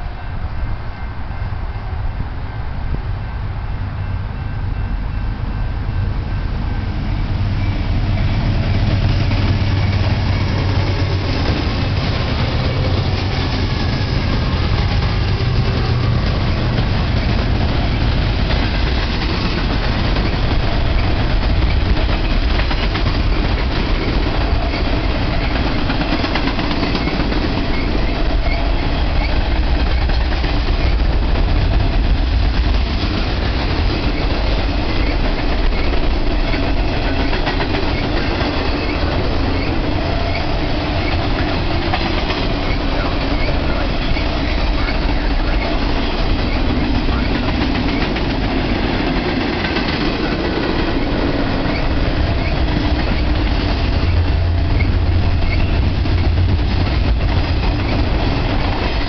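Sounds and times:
diesel locomotive engines: 0.0 - 59.0
rail cars rumbling and clattering: 0.0 - 59.0.

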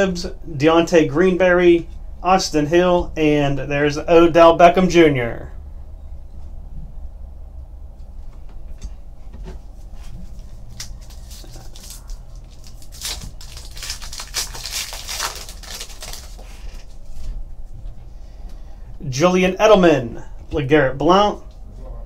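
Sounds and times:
foil wrapper crinkling and ripping: 10.3 - 17.0.

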